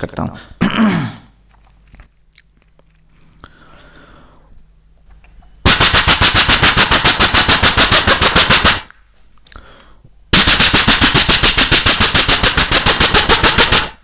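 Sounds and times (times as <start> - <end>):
vocal imitation of machine gun: 10.4 - 14.0.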